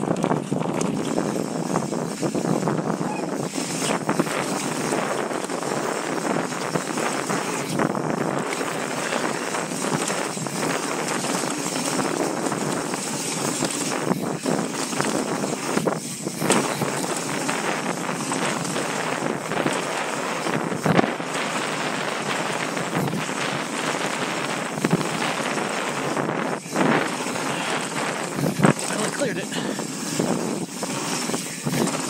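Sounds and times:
bike knocking on bumps: 0.0s - 32.0s
bike rolling over trail: 0.0s - 32.0s
wind on microphone: 0.0s - 32.0s.

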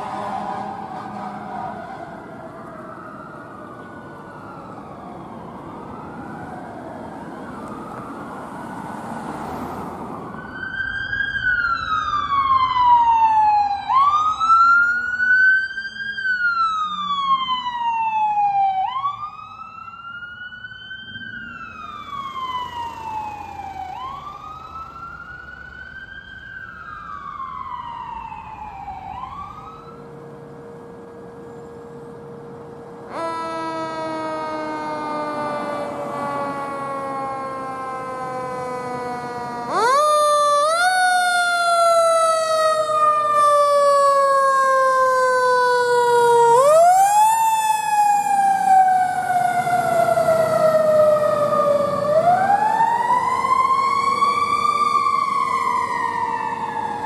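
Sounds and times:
low traffic rumble: 0.0s - 57.0s
electronic siren wailing: 10.2s - 30.3s, 31.4s - 57.0s.

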